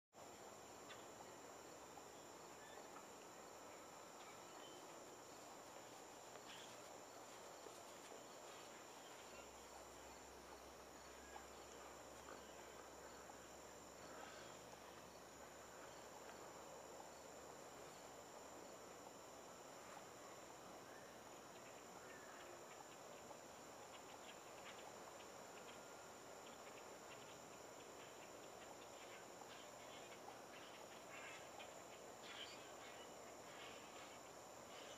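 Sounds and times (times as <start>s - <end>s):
high-pitched insect trill: 0.6s - 34.9s
faint bird chirps: 2.1s - 5.5s, 6.3s - 7.4s, 28.0s - 34.9s.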